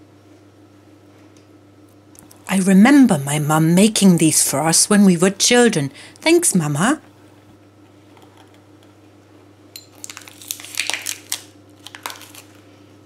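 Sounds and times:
foil packet crinkling: 10.0s - 12.8s.

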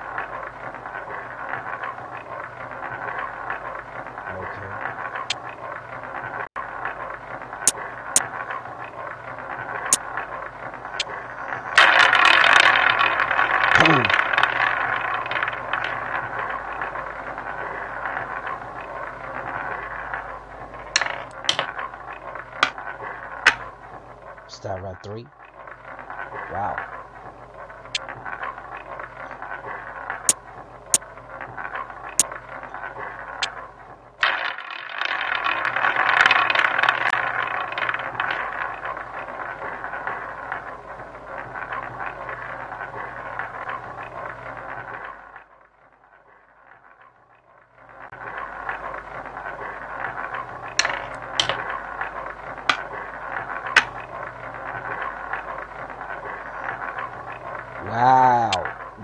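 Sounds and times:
roulette wheel spinning with ball: 0.0s - 59.0s
casino chips clicking: 11.8s - 16.2s, 20.9s - 21.8s, 50.7s - 55.3s.

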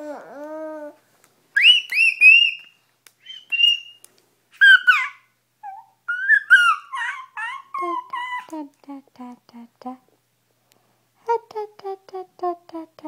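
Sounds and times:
baby cooing: 0.0s - 1.0s, 4.6s - 8.6s
baby squealing: 4.6s - 8.5s.

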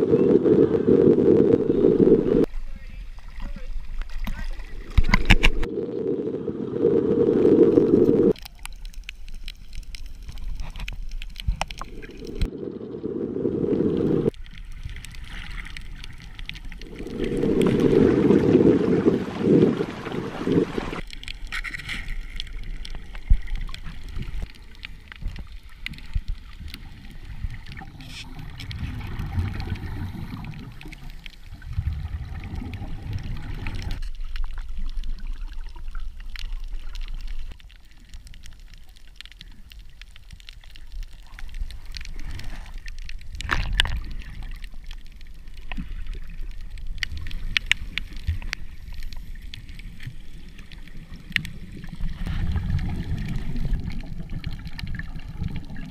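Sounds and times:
diver's air bubbles: 0.0s - 2.5s, 4.6s - 8.4s, 11.4s - 21.1s, 26.2s - 37.5s, 49.6s - 55.9s
underwater water gurgling: 0.0s - 55.9s.

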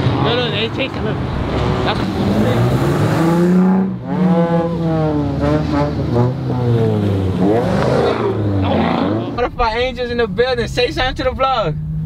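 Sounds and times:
cars accelerating past: 0.0s - 9.4s.

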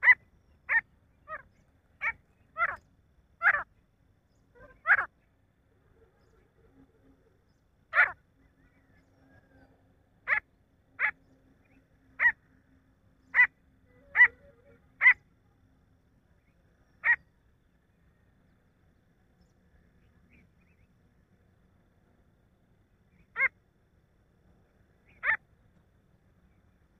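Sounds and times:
francolin calling: 0.0s - 3.7s, 4.4s - 5.3s.

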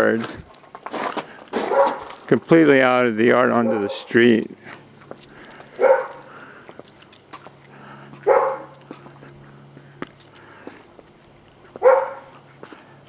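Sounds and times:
dog barking: 1.7s - 2.1s, 3.6s - 4.1s, 5.8s - 6.3s, 8.2s - 8.7s, 11.8s - 12.4s.

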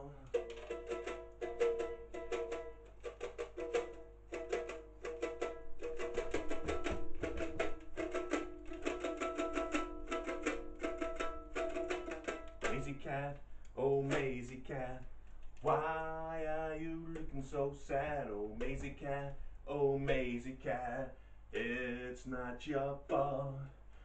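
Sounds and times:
ukulele strummed quickly: 0.0s - 13.3s, 14.0s - 15.0s.

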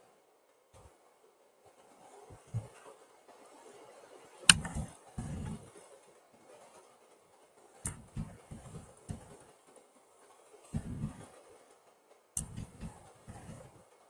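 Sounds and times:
faint steady hiss: 0.0s - 14.0s
sharp clicks: 4.5s - 5.6s, 12.4s - 13.7s
dull low thumps: 4.5s - 5.7s, 7.9s - 9.3s, 10.8s - 11.2s, 12.4s - 13.7s.

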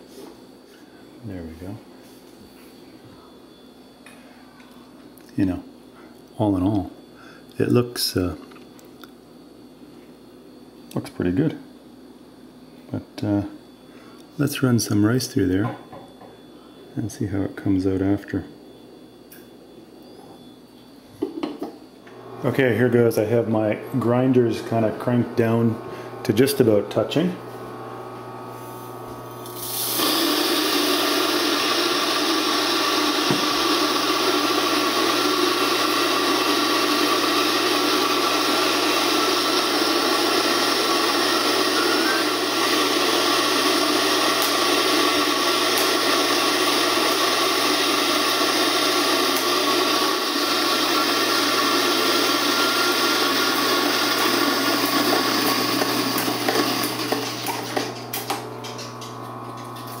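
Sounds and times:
coffee grinder grinding rice: 27.7s - 60.0s.

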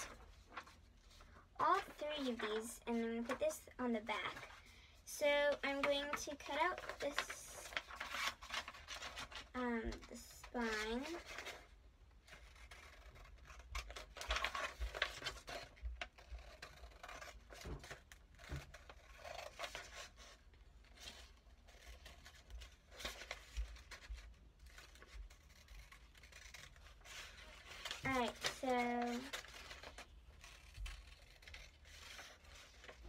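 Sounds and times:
paper rustling: 0.0s - 4.7s, 5.3s - 11.7s, 12.3s - 33.0s
scissors snipping paper: 5.6s - 11.6s, 12.3s - 20.3s, 21.1s - 33.0s.

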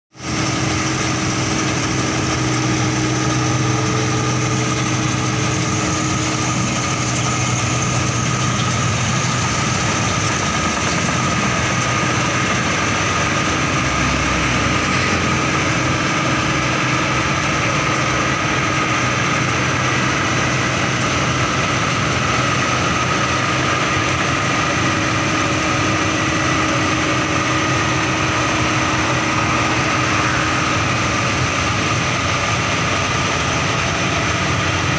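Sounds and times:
combine harvester running: 0.1s - 34.9s.

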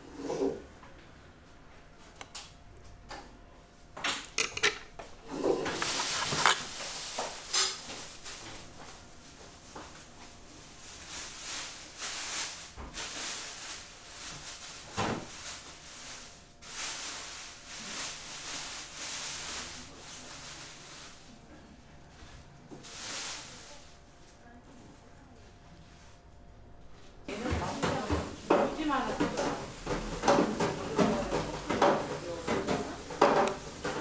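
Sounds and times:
handling noise: 5.6s - 8.7s.

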